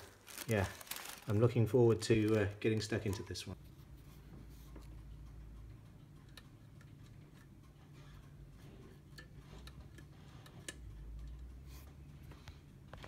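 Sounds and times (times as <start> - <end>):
clock ticking faintly: 2.7 - 13.0.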